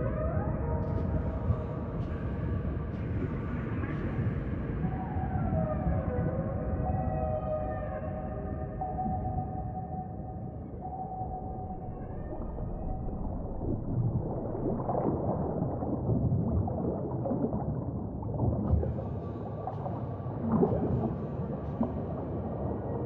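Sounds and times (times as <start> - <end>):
muffled underwater water sloshing: 8.4 - 23.0.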